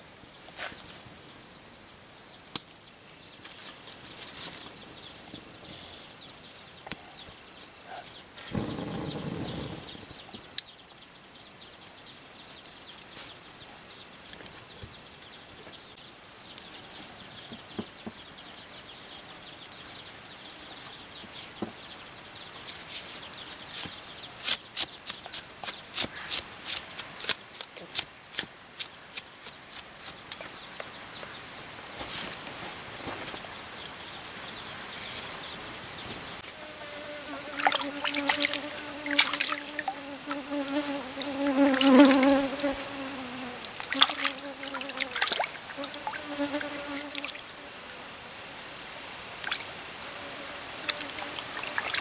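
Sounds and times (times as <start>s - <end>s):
wood fire crackling: 8.4s - 10.4s.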